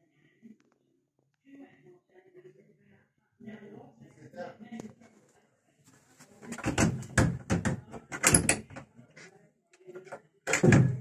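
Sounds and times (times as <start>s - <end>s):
wooden cupboard door knocking: 6.6s - 8.7s.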